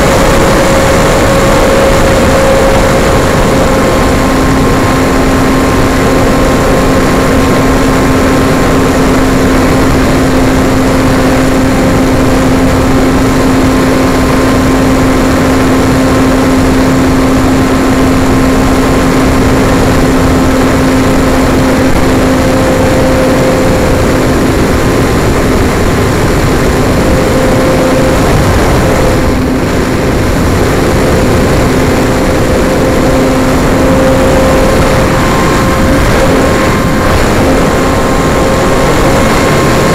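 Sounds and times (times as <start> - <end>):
electric motor and propeller hum: 0.0 - 39.9
wind rush on microphone: 0.0 - 39.9.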